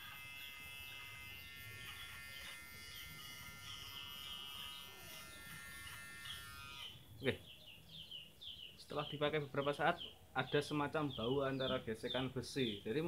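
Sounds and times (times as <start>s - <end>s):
electric hair clipper buzzing: 0.0s - 7.0s.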